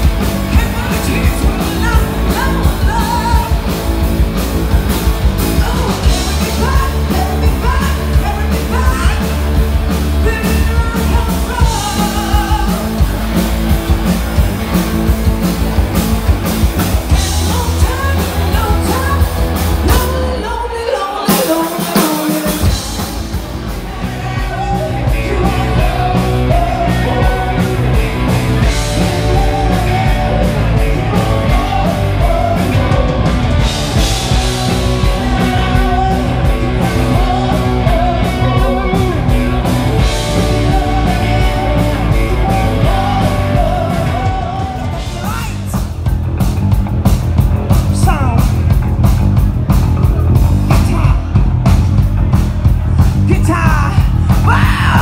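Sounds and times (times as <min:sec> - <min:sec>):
bass guitar: 0:00.0 - 0:55.0
drum kit: 0:00.0 - 0:55.0
electric guitars: 0:00.0 - 0:55.0
woman singing lead: 0:05.4 - 0:09.3, 0:17.1 - 0:45.9.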